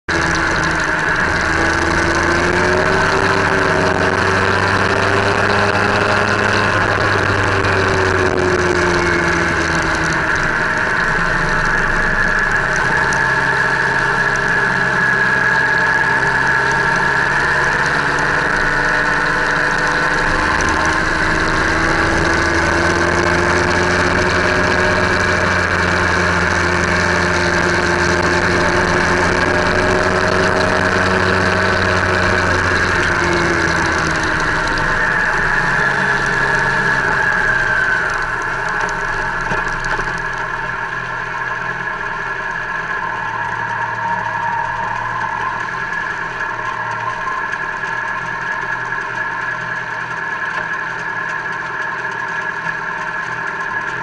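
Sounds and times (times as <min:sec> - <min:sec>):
road and wind noise: 0:00.0 - 0:54.0
vehicle engine running: 0:00.0 - 0:54.0.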